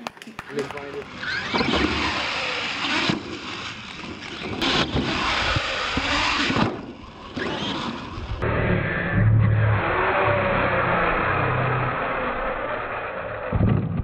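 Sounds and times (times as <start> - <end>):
tires churning dirt: 0.0 - 14.0
toy truck motor whirring: 1.0 - 8.4.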